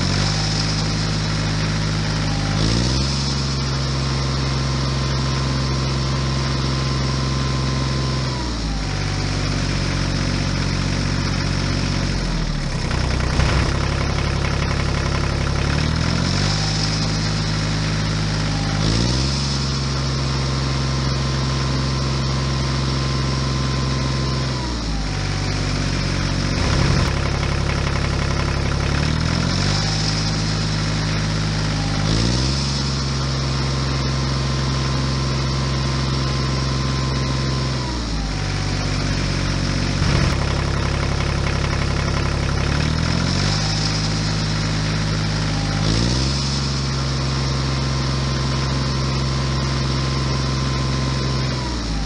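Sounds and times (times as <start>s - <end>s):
tractor engine: 0.0s - 52.0s.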